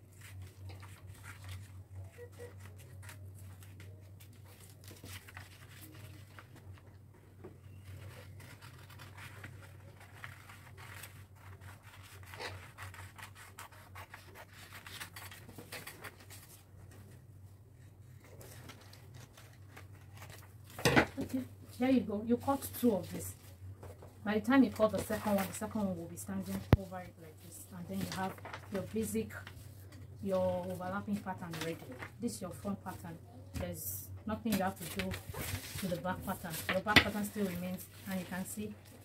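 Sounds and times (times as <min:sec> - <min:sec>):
paper rustling: 0:00.0 - 0:17.2, 0:17.8 - 0:21.4, 0:22.4 - 0:33.0, 0:34.5 - 0:39.0
scissors snipping paper: 0:08.0 - 0:16.3.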